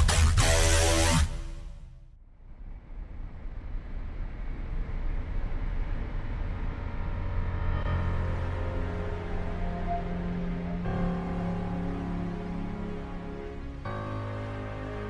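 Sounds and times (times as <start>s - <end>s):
electronic intro music: 0.0s - 2.0s
low rumbling drone: 0.0s - 15.0s
faint sustained tones: 2.6s - 15.0s.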